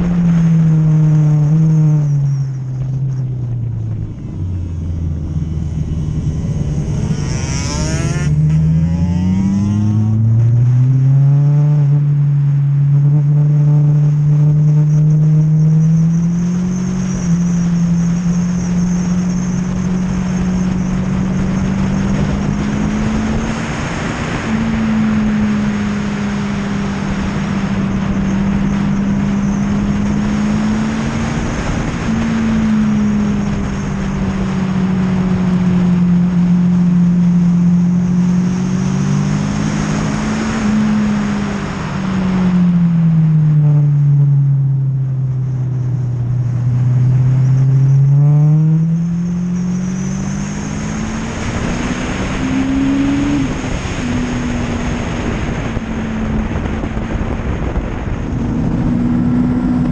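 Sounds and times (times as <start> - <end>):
motorcycle engine at speed: 0.0 - 59.9
wind rush: 49.6 - 59.9.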